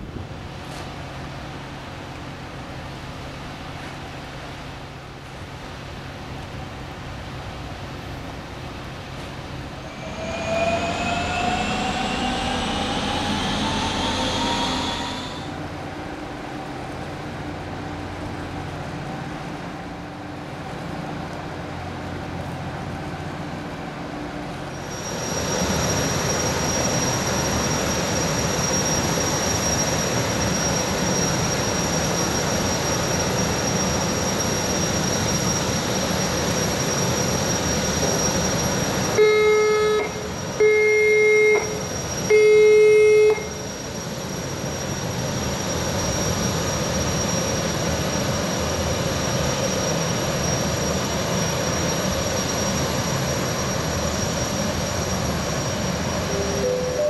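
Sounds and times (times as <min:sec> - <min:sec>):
gas turbines whining: 0:09.5 - 0:18.6, 0:24.5 - 0:57.0
ship's horn blasts: 0:39.2 - 0:43.6.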